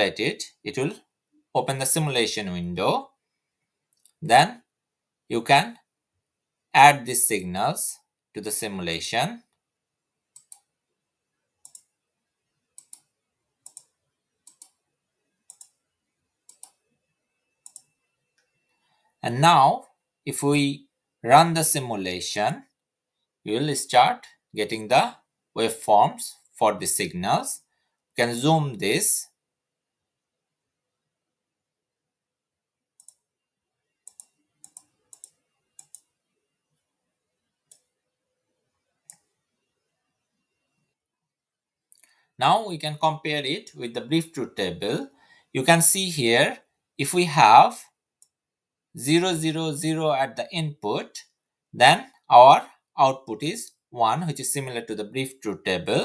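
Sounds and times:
computer mouse clicks: 0:10.3 - 0:10.7, 0:11.6 - 0:12.0, 0:12.7 - 0:14.8, 0:15.4 - 0:15.8, 0:16.5 - 0:16.8, 0:17.4 - 0:18.9, 0:33.0 - 0:33.3, 0:34.0 - 0:36.8, 0:37.4 - 0:38.0, 0:38.8 - 0:40.7.

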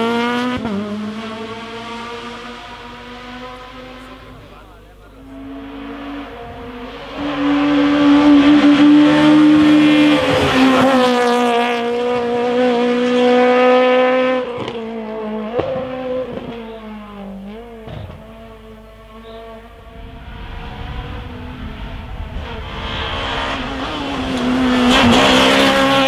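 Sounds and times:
rally car engine at high revs: 0:00.0 - 0:26.0.

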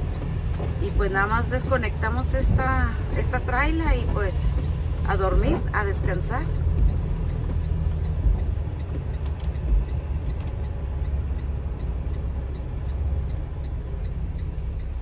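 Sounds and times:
rain: 0:00.0 - 0:05.7
diesel engine running low: 0:00.0 - 0:15.0
indicator flasher ticking: 0:00.1 - 0:15.0
sharp clicks: 0:06.0 - 0:14.9.

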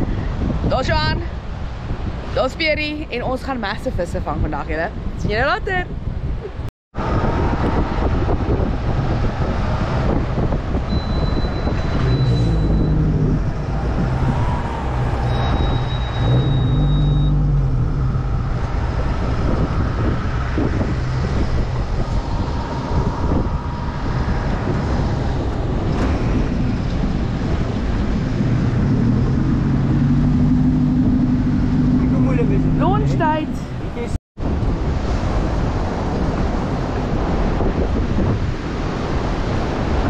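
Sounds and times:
wind and water rushing: 0:00.0 - 0:40.0
boat engine running: 0:10.2 - 0:34.1.

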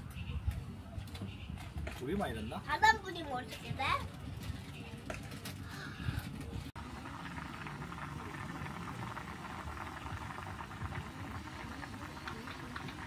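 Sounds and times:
broth boiling in a pan: 0:06.1 - 0:13.0.

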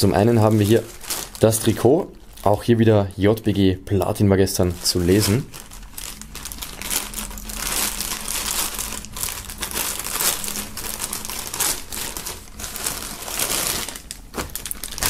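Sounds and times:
plastic bag crinkling: 0:00.0 - 0:03.6, 0:04.5 - 0:15.0.

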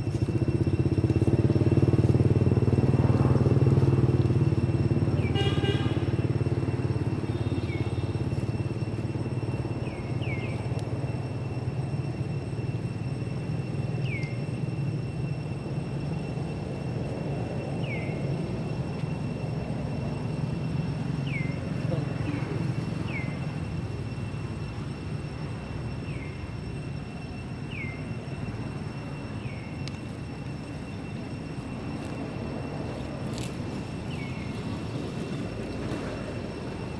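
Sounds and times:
motorbike engine running: 0:00.0 - 0:10.6.

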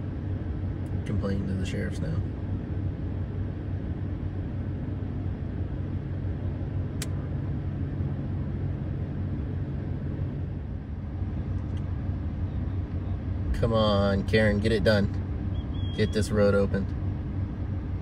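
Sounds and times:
vehicle engine idling: 0:00.0 - 0:18.0
sharp click: 0:07.0 - 0:07.2.

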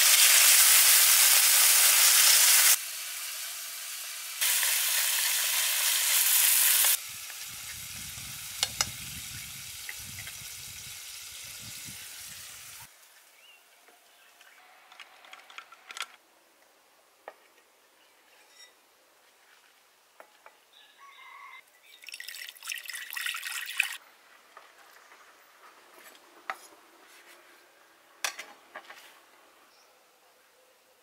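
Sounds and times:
water pouring into clay pot: 0:22.0 - 0:24.0.

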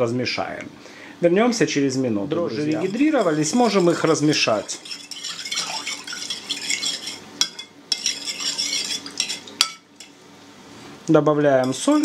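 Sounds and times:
metal spoon scraping a bowl: 0:02.6 - 0:10.1.

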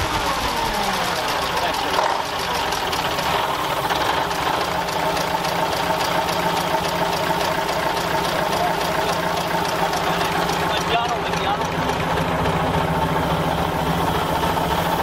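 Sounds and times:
diesel engine idling: 0:00.0 - 0:15.0.

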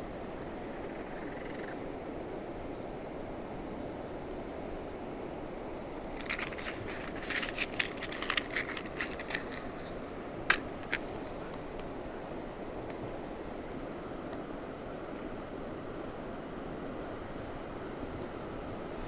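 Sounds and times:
match scratching on matchbox: 0:06.1 - 0:12.0
match strike: 0:06.2 - 0:11.9.

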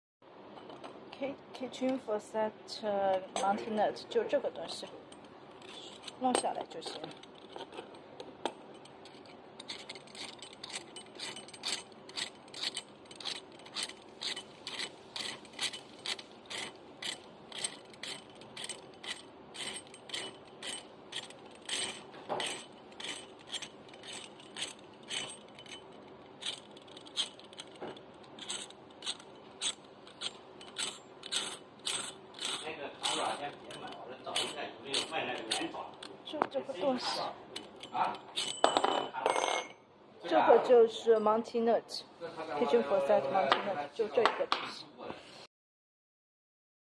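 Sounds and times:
metal nut clicking on threads: 0:08.4 - 0:36.4, 0:37.6 - 0:38.7.

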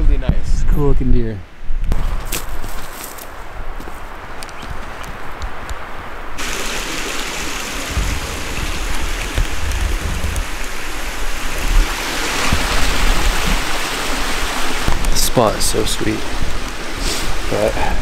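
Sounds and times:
footsteps through dry brush: 0:01.9 - 0:05.4
creek rushing: 0:03.2 - 0:18.0
microphone rumble: 0:07.8 - 0:10.7.

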